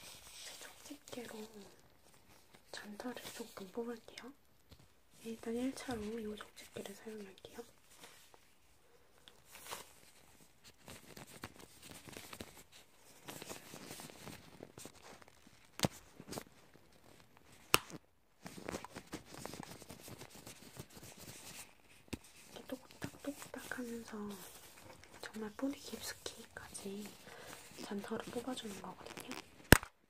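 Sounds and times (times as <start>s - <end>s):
gloved hands rubbing scratchily: 0.0s - 4.4s, 9.4s - 17.2s, 18.4s - 29.6s.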